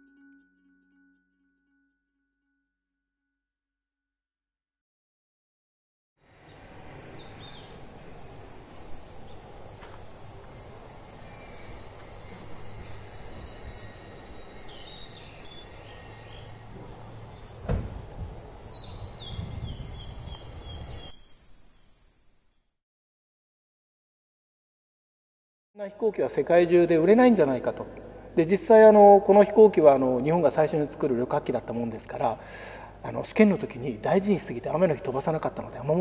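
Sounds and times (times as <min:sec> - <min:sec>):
high-pitched insect chorus: 0:06.2 - 0:22.8
dull thump: 0:17.6 - 0:18.3.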